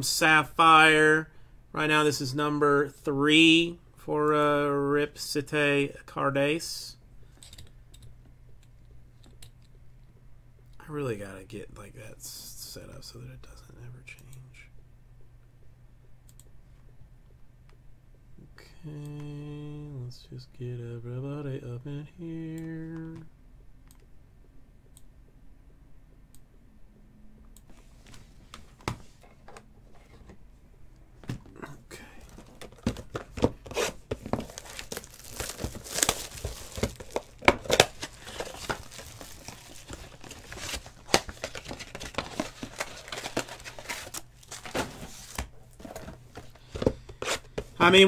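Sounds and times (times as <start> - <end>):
plastic wrap crinkling and tearing: 33.6 - 45.4.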